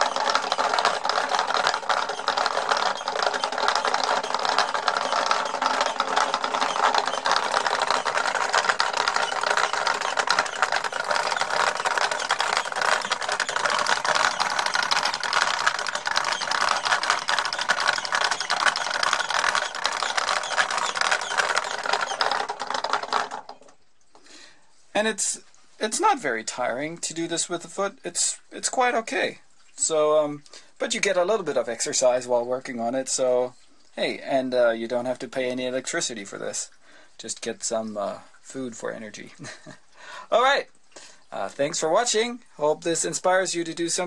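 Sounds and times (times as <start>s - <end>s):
wooden gears clattering: 0.0s - 23.8s.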